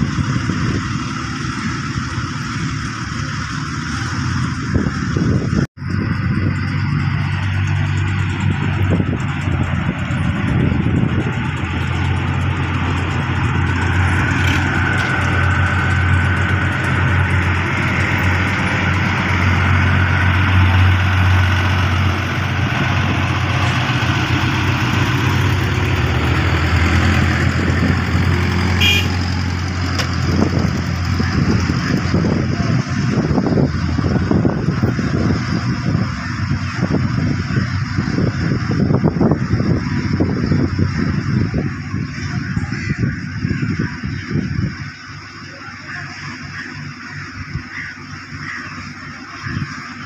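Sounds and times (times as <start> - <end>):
road roller diesel engine humming: 0.0 - 50.0.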